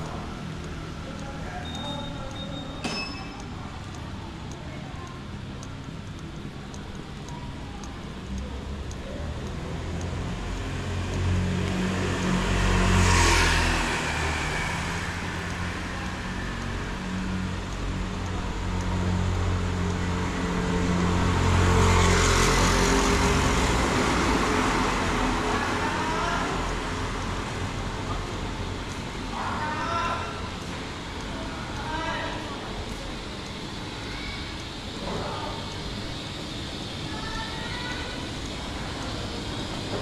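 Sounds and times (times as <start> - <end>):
steady engine hum: 0.0 - 40.0
motor vehicles passing: 8.3 - 40.0.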